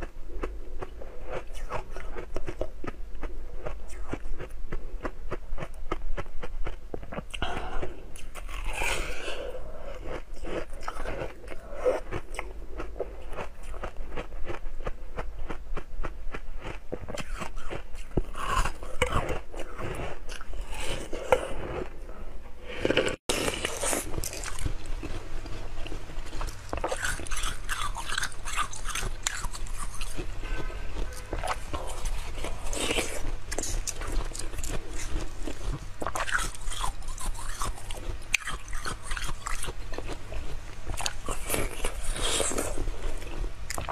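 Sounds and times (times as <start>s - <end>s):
crunching frozen ice: 22.8s - 43.9s.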